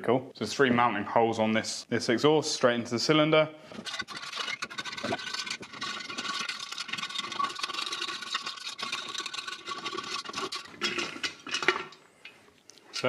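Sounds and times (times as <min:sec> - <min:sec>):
screwdriver clicking and grating bolts: 0:03.8 - 0:11.1.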